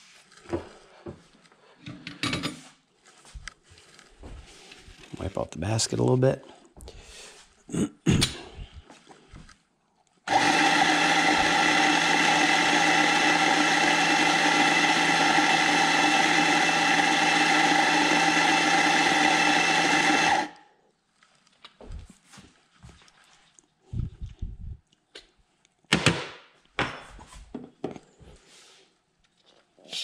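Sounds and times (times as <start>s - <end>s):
coffee grinder motor whirring: 10.3s - 20.6s.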